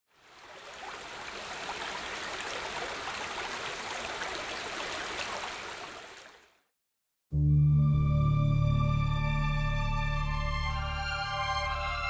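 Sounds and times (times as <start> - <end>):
water babbling over rocks: 0.1 - 6.6.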